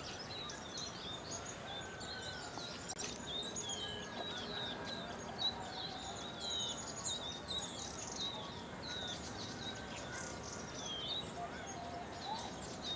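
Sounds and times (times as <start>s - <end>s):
songbirds chirping: 0.0s - 12.9s.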